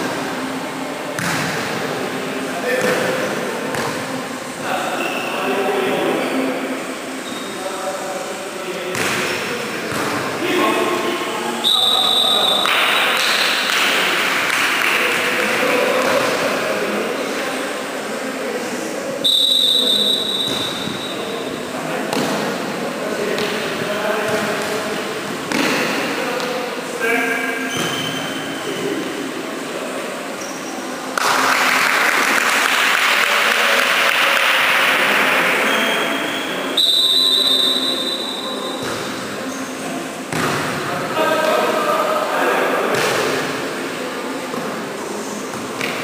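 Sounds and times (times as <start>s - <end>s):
referee's whistle blast: 11.6s - 13.1s, 19.2s - 21.2s, 35.7s - 38.6s
applause and cheering: 31.2s - 35.0s.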